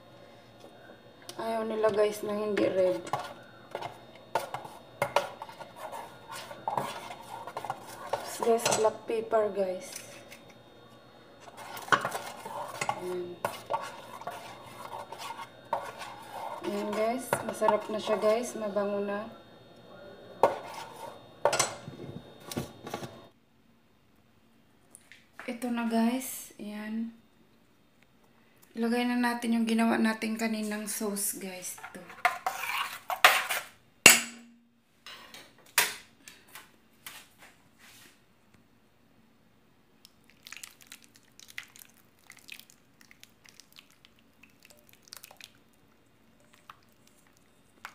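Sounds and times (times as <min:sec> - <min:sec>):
spoon stirring thick sauce in pot: 0:01.9 - 0:09.0, 0:11.4 - 0:18.6, 0:20.4 - 0:21.3, 0:31.8 - 0:33.6
metal pot and ladle clanking: 0:06.7 - 0:09.0, 0:21.4 - 0:21.9.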